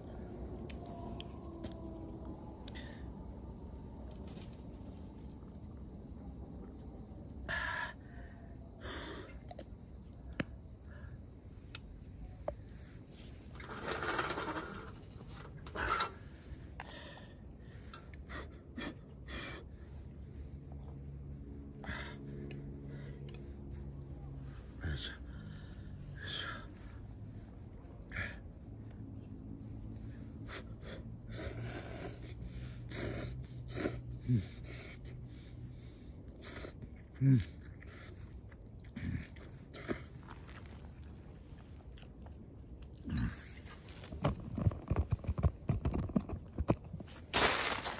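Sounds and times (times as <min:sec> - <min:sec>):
man panting heavily: 0:21.6 - 0:23.8, 0:30.2 - 0:38.1.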